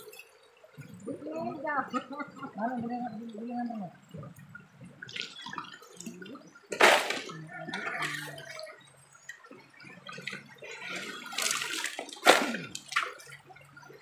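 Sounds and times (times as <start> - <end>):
river water running: 0.0 - 14.0
shovel scooping gravel in water: 6.8 - 7.3, 11.5 - 13.0.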